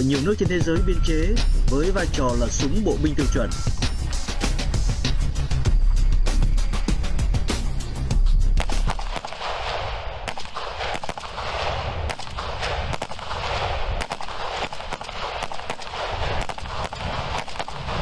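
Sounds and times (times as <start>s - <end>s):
gunshot echoes: 8.6s - 18.0s
rifles firing single shots: 8.6s - 18.0s.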